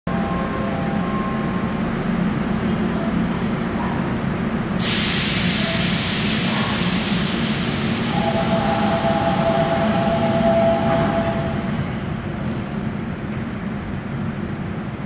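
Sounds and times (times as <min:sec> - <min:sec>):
compressed air hissing: 0:04.8 - 0:11.7
train equipment humming: 0:04.8 - 0:14.2.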